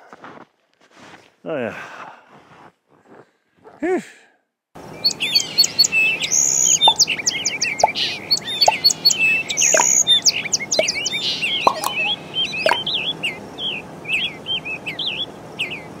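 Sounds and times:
birds chirping and twittering: 4.8s - 16.0s.

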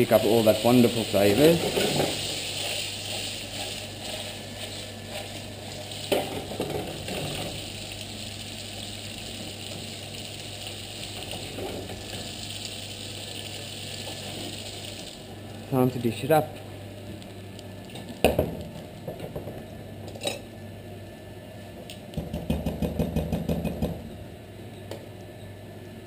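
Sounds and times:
pasta sizzling in a frying pan: 0.0s - 15.7s.

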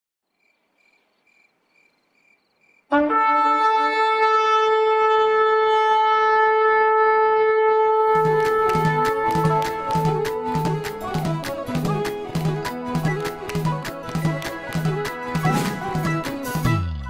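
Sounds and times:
ram's horn blast: 2.9s - 11.0s
music with steady drumbeat: 8.2s - 16.8s.

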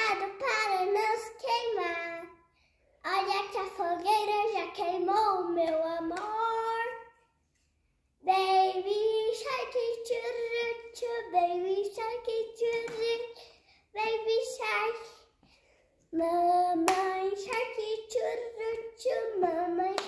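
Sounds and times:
girl singing unaccompanied: 0.0s - 7.2s, 8.2s - 15.4s, 16.0s - 20.0s
light hand claps: 12.7s - 13.1s.

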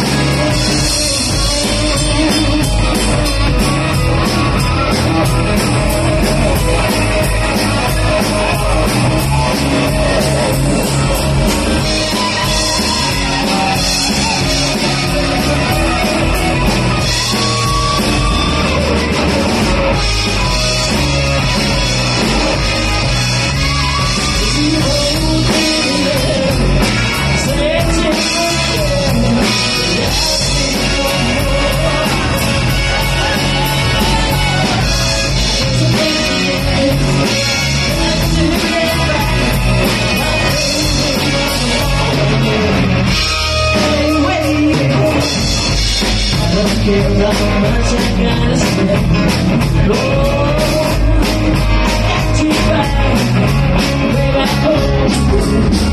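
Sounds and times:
bass guitar: 0.0s - 55.9s
drums: 0.0s - 55.9s
electric guitar: 0.0s - 55.9s
woman singing: 24.3s - 42.8s, 46.4s - 55.9s.

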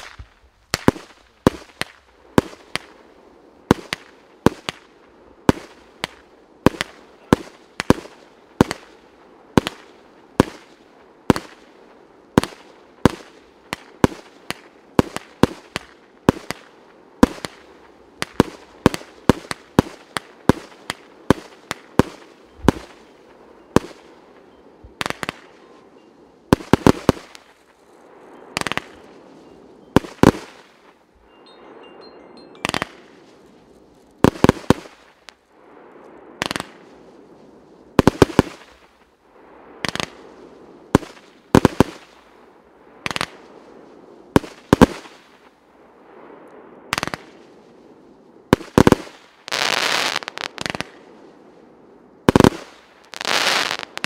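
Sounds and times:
firework shots firing: 0.0s - 3.0s, 3.7s - 11.7s, 12.4s - 24.1s, 25.0s - 25.6s, 26.5s - 27.6s, 28.6s - 29.0s, 30.0s - 30.8s, 32.6s - 33.2s, 34.2s - 35.4s, 36.4s - 36.9s, 38.0s - 38.9s, 39.8s - 40.3s, 40.9s - 42.2s, 44.4s - 45.4s, 48.5s - 51.1s, 52.3s - 54.0s
faint continuous noise: 0.0s - 54.0s.

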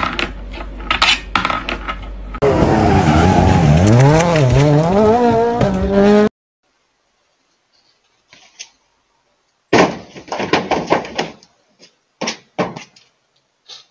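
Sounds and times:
loud thump: 9.7s - 11.4s.

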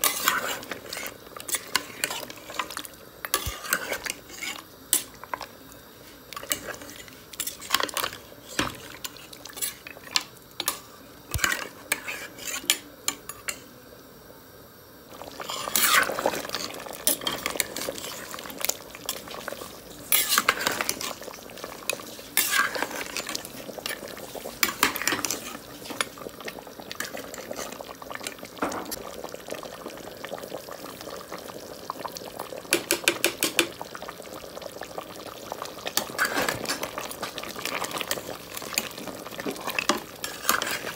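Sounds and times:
metal spoon stirring in pot: 0.0s - 5.5s, 6.4s - 13.6s, 15.2s - 26.1s, 35.9s - 40.9s.

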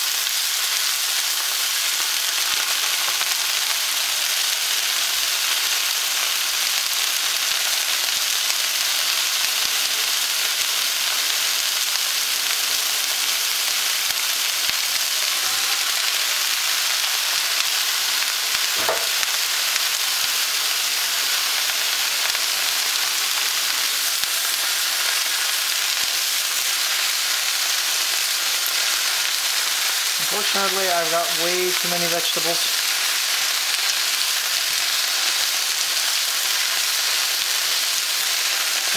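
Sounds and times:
vegetables sizzling in frying pan: 0.0s - 38.9s
single knock: 18.8s - 19.2s.

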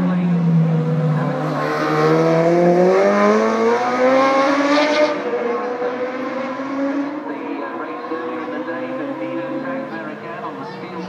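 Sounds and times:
motorcycle engine accelerating: 0.0s - 9.9s.

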